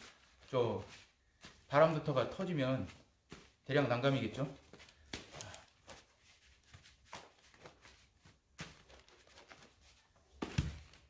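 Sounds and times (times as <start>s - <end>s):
hands rubbing bicycle tire: 0.0s - 8.6s.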